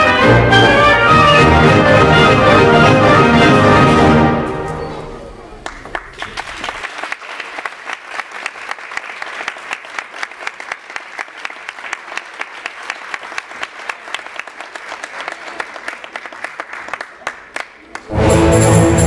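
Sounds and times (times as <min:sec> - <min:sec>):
audience applauding: 0:05.5 - 0:18.2.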